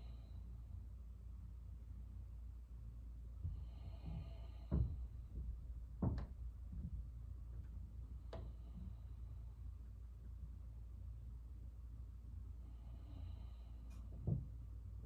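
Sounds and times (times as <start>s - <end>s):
low room hum: 0.0s - 15.0s
soft thumps and knocks: 3.4s - 9.0s, 14.1s - 14.6s.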